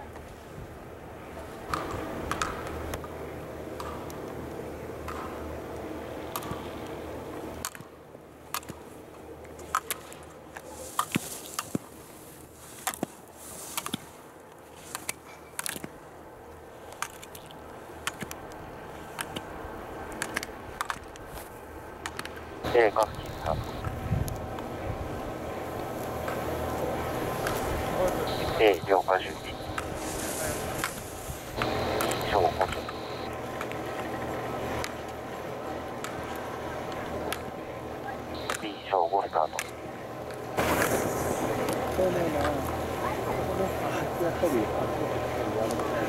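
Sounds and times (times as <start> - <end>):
skis scraping on snow: 10.6 - 15.1, 27.2 - 32.6, 40.6 - 42.5
steady rushing noise: 17.8 - 35.0.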